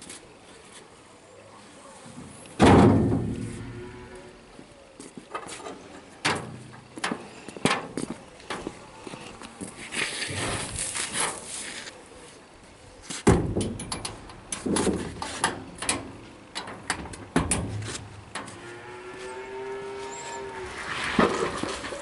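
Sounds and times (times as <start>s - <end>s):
metal door clunking and rattling: 2.6s - 4.0s, 6.2s - 8.7s, 13.2s - 18.6s
footsteps on concrete: 7.4s - 11.9s
drawn-out animal call: 18.6s - 21.8s.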